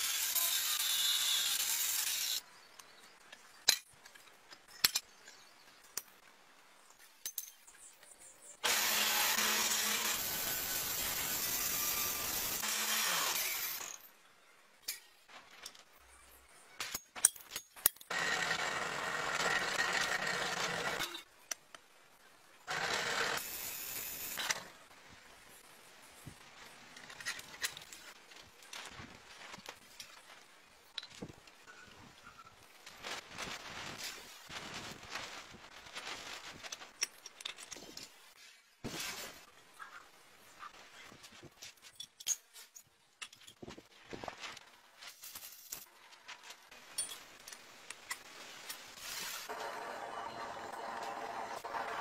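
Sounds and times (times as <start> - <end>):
angle grinder cutting steel: 0.0 - 2.4, 8.6 - 14.0
drill boring through steel: 8.6 - 13.9.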